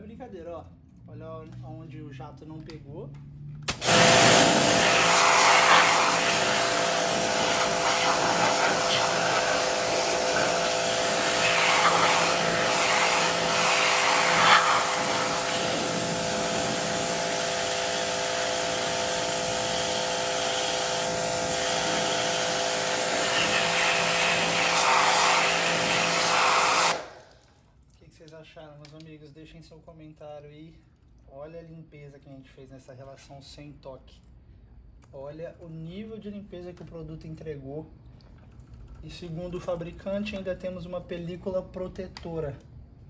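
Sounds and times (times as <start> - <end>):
pressure washer motor hum: 3.7 - 27.3
water spray hissing: 3.8 - 18.0, 18.6 - 27.1.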